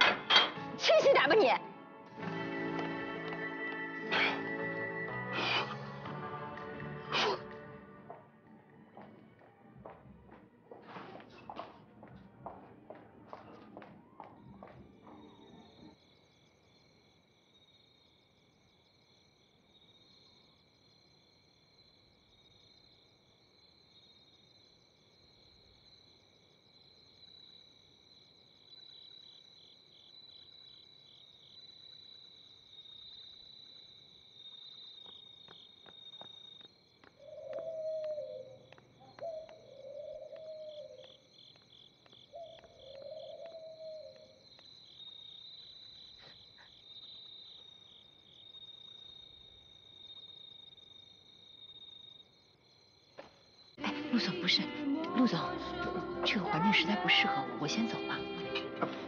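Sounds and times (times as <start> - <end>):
crickets chirping: 0.0 - 59.0
woman sobbing: 53.8 - 54.8.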